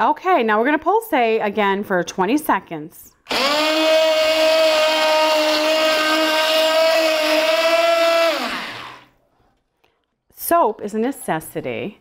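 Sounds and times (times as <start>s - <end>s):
immersion blender whining: 3.3s - 9.1s.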